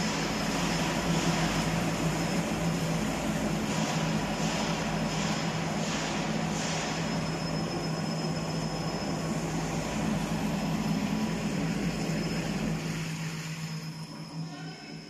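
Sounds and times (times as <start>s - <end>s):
motors droning with high whine: 6.4s - 15.0s.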